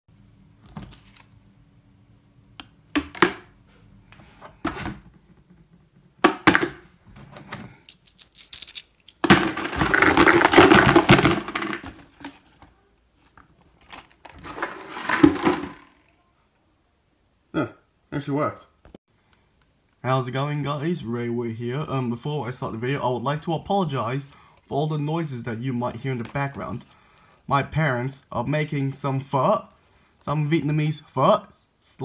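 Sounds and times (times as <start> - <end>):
coins clinking into plastic bucket: 7.7 - 12.0, 14.4 - 16.0.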